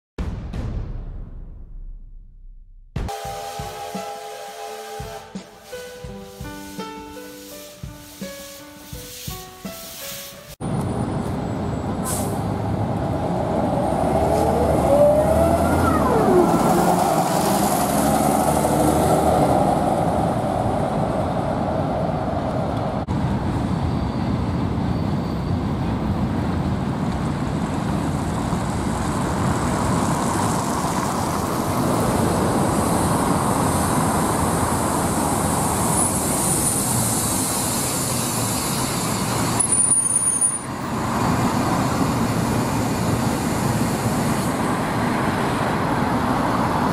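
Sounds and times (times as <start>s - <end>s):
road traffic: 3.1s - 46.9s
bus engines running: 10.5s - 46.9s.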